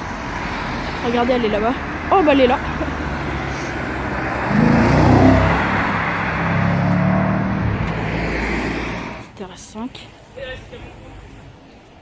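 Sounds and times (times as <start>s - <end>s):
traffic hum: 0.0s - 12.0s
car engine accelerating: 2.4s - 9.2s.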